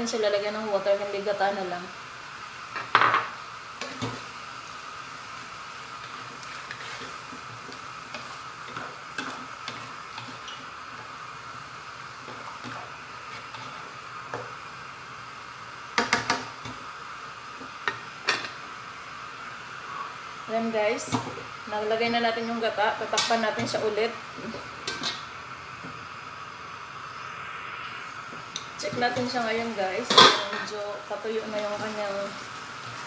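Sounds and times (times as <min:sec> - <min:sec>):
sauce hissing in pan: 0:00.0 - 0:33.0
spatula scraping pan: 0:06.0 - 0:11.1, 0:12.2 - 0:14.5, 0:28.8 - 0:30.8.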